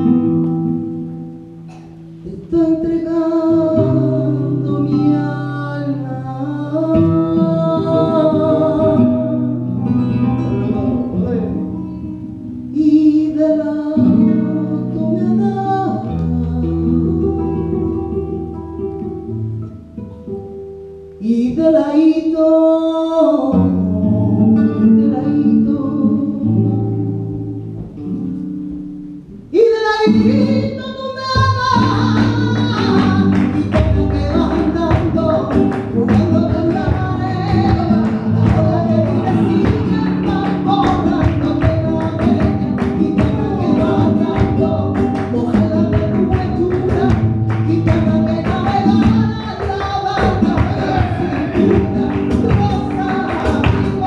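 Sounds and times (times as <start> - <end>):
people singing: 31.8 - 54.0
live band music: 50.2 - 54.0.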